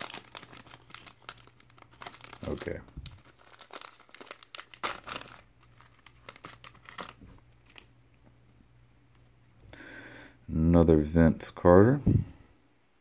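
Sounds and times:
foil wrapper crinkling and tearing: 0.0 - 7.9.

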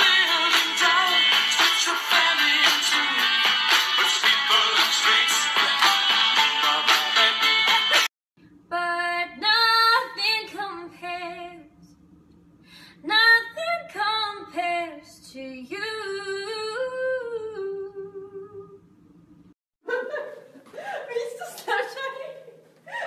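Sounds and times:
woman singing unaccompanied: 8.7 - 11.7, 13.1 - 18.8.

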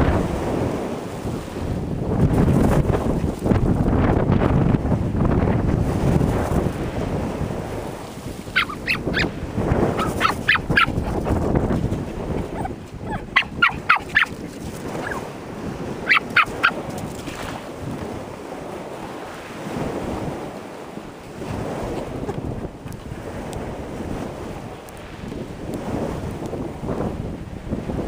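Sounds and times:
waves on pebble beach: 0.0 - 4.1, 4.8 - 28.0
short high calls: 8.6 - 9.3, 12.5 - 14.4, 16.1 - 16.8.

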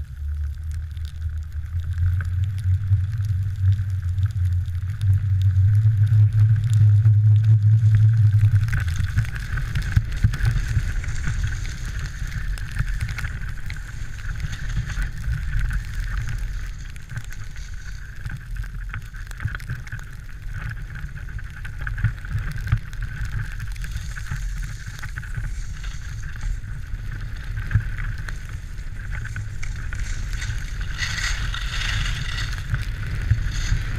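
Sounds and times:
wind rumble on microphone: 0.0 - 33.9
skis hissing over snow: 8.7 - 18.4, 23.8 - 33.9.

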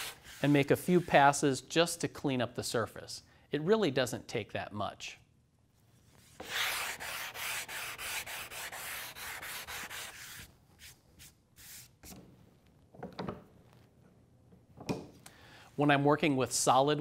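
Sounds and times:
hand sanding plywood: 0.0 - 1.4, 6.3 - 11.9.

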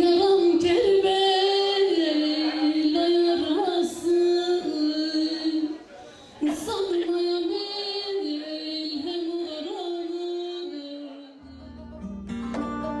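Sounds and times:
sharp plucked notes: 11.4 - 13.0.

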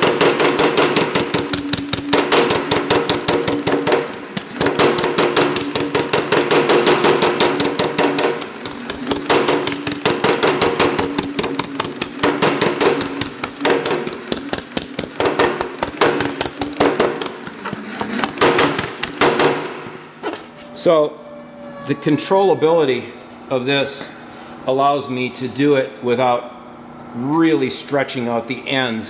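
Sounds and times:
power hammer striking sheet metal: 0.0 - 20.2.

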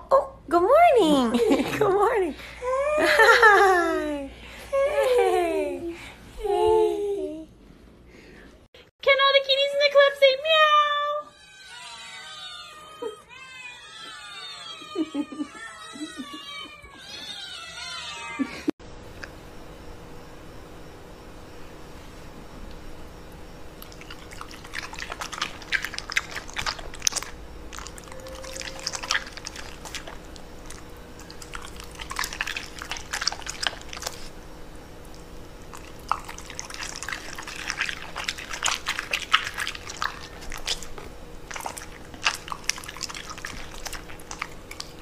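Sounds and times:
dog crunching vegetables: 23.8 - 34.4, 35.0 - 45.0.

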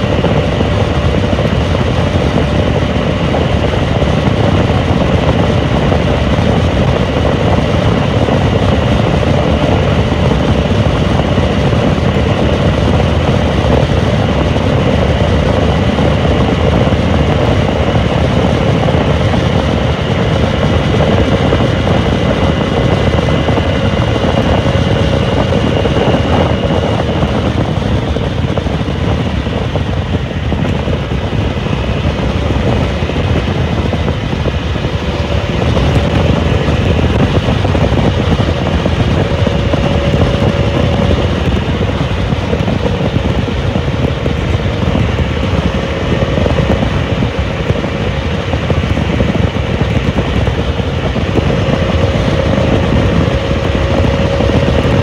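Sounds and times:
motorcycle engine cruising: 0.0 - 55.0
wind rush on microphone: 0.0 - 55.0.

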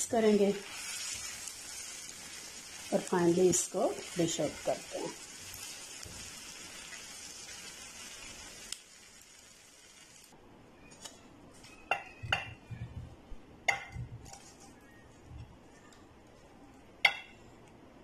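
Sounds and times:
liver sizzling in frying pan: 0.0 - 10.4.

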